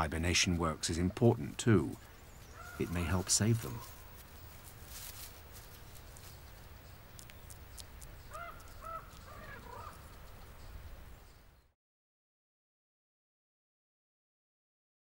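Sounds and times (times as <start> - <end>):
short arching animal calls: 2.5 - 4.1, 8.3 - 10.1.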